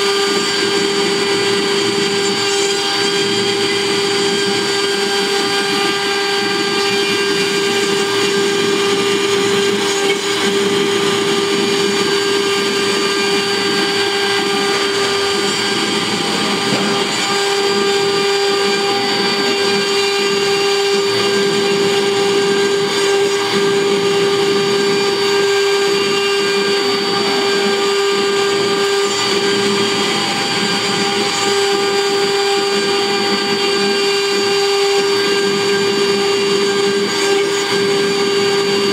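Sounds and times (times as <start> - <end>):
high spindle whine: 0.0 - 38.9
cutter rustling through wood: 4.1 - 33.6.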